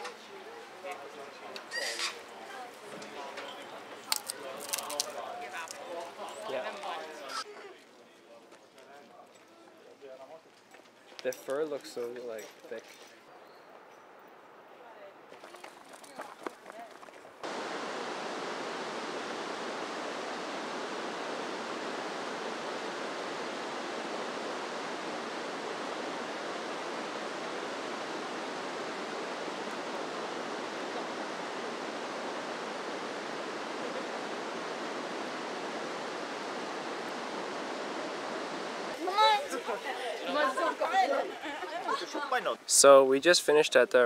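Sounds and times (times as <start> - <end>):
river water rushing over rocks: 17.4 - 39.4.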